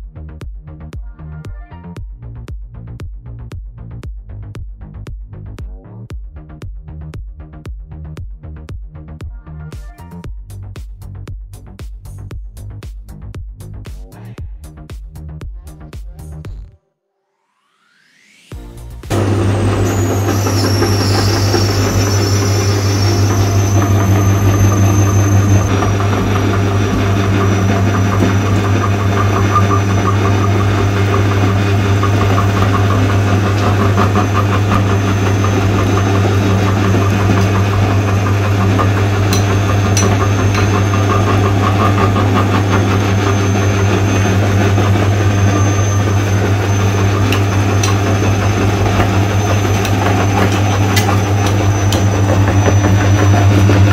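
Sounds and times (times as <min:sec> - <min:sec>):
motor whine: 0:17.6 - 0:53.9
electric meat grinder humming: 0:19.1 - 0:53.9
fast grinding rattle: 0:19.2 - 0:53.9.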